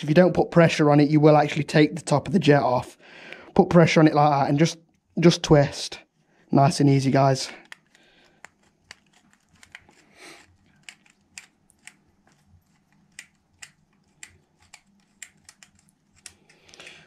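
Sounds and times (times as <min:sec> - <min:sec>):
screwdriver clicks and taps: 0:07.6 - 0:16.6.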